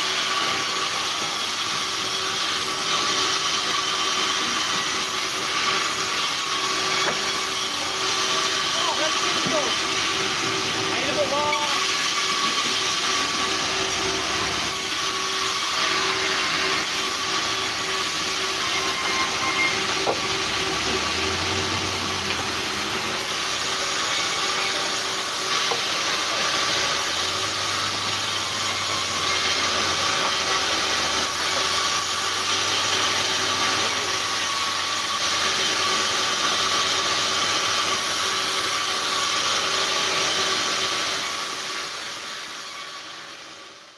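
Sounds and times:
band saw machine hum: 0:00.0 - 0:43.4
saw blade hissing through wood: 0:00.0 - 0:43.8.

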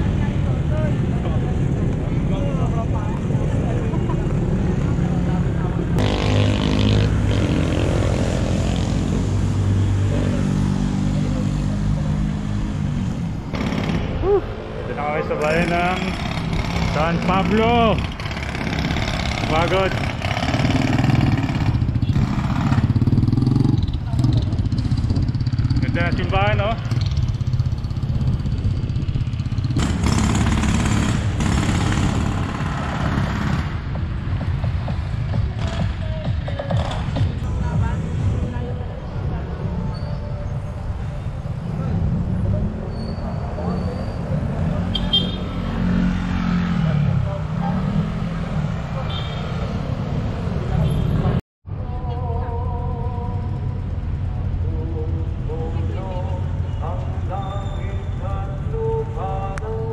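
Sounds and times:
vehicle engine humming: 0:00.0 - 0:59.9
wind rushing over microphone: 0:27.6 - 0:30.0.

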